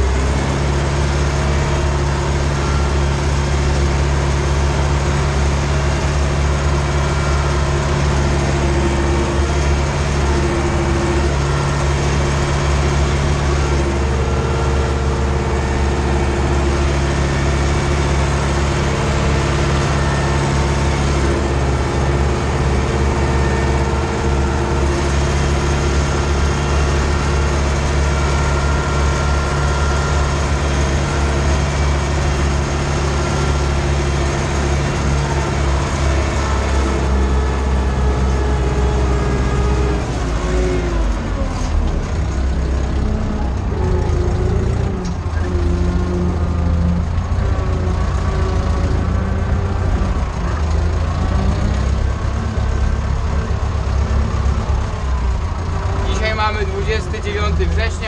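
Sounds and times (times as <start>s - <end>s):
tractor diesel engine: 0.0s - 58.0s.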